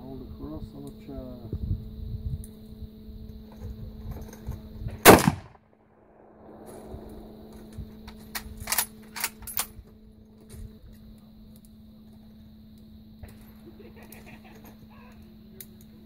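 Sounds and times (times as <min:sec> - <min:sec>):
rifle shot: 0:05.0 - 0:07.5
sharp clicks: 0:05.1 - 0:05.6.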